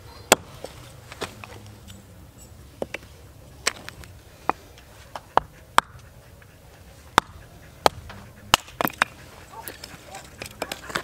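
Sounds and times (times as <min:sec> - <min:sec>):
hatchet chopping firewood: 0:00.3 - 0:00.7, 0:05.2 - 0:06.1, 0:07.2 - 0:11.0.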